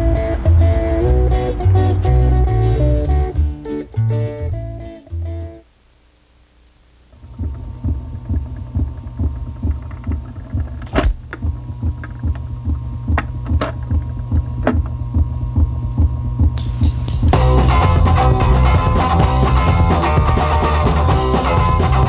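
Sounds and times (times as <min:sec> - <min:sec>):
low throbbing bass pulse: 0:00.0 - 0:05.5, 0:07.2 - 0:22.0
faint steady hum: 0:00.0 - 0:22.0
sharp clicks: 0:07.2 - 0:15.3
loud rock song: 0:17.3 - 0:22.0.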